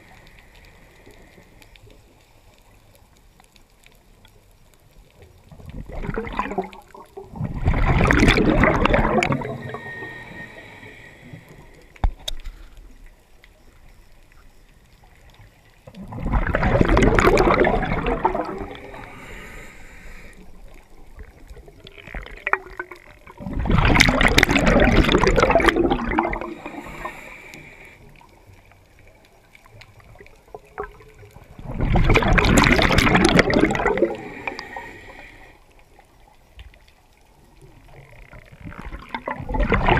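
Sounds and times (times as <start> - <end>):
underwater bubbles gurgling: 0.0 - 39.9.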